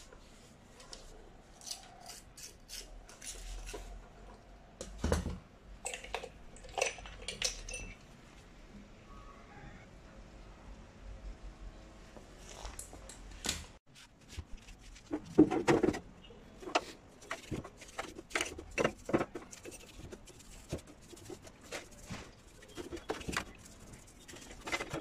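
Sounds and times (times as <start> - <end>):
brush scrubbing plastic housing: 16.6 - 25.0.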